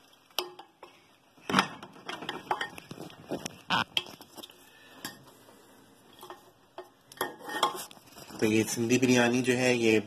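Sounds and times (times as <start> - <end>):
spoon scraping a ceramic plate: 7.2 - 8.0.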